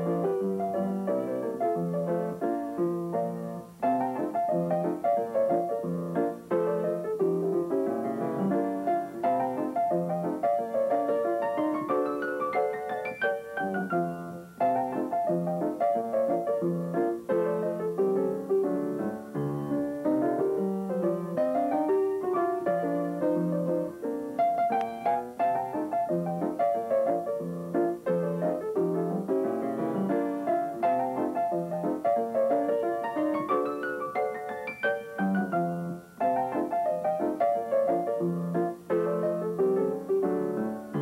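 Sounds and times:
piano music: 0.0 - 41.0.

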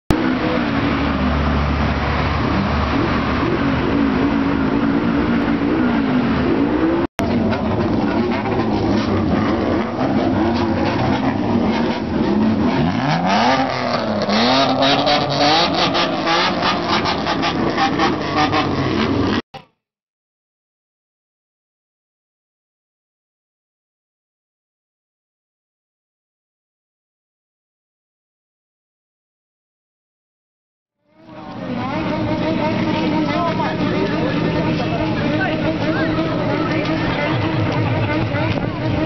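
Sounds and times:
car exhaust revving: 0.1 - 19.4, 31.2 - 39.0
exhaust pops: 7.2 - 19.4, 31.4 - 39.0.

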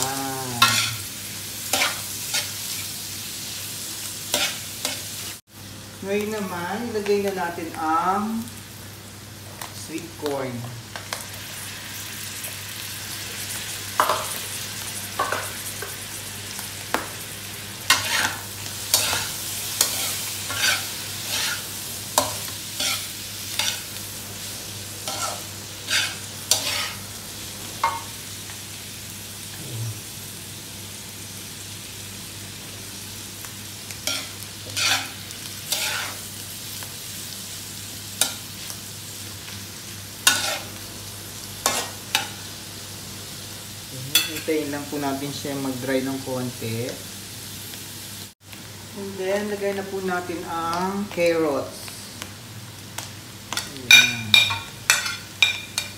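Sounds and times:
food sizzling: 0.0 - 55.9
metal spatula scraping wok: 0.6 - 1.0, 17.9 - 23.9, 25.0 - 27.0, 34.0 - 36.2, 40.2 - 40.7.

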